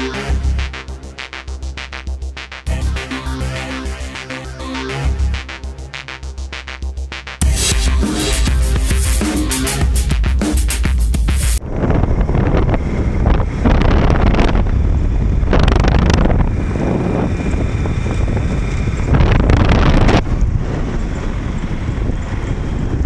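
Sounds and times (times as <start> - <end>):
road noise: 7.4 - 23.0
wind buffeting microphone: 11.6 - 23.0.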